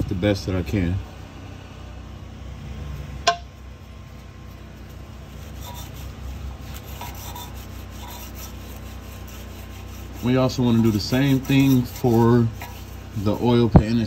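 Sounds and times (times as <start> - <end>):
sharp metallic ping: 3.2 - 3.5
wire brush scrubbing metal: 4.0 - 14.0.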